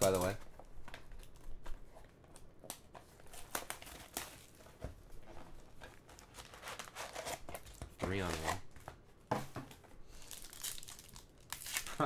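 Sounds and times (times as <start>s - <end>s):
card pack wrappers crinkling: 10.2s - 12.0s.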